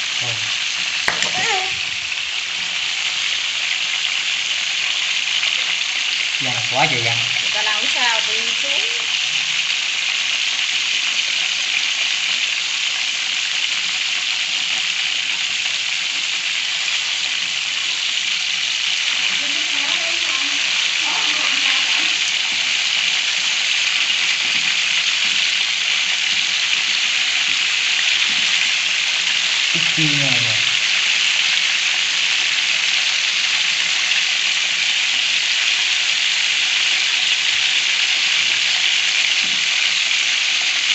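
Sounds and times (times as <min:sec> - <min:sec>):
oil sizzling in a pan: 0:00.0 - 0:40.9.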